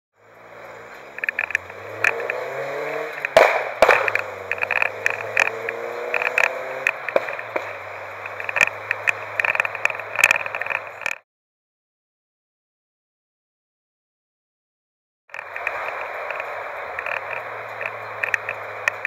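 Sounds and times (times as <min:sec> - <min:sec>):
car engine accelerating: 0:00.2 - 0:11.2, 0:15.3 - 0:19.0
crackles and pops: 0:00.3 - 0:11.2, 0:15.3 - 0:19.0.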